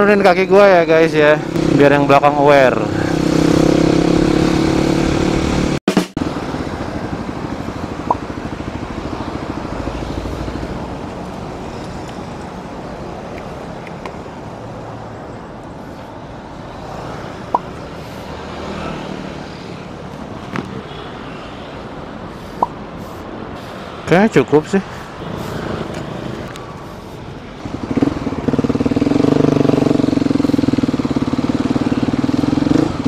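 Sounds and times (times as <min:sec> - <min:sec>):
street traffic: 0:00.0 - 0:33.0.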